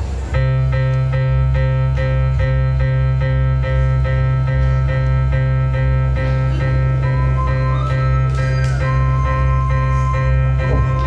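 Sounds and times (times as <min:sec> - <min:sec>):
pulsing keyboard music with bass: 0:00.3 - 0:11.0.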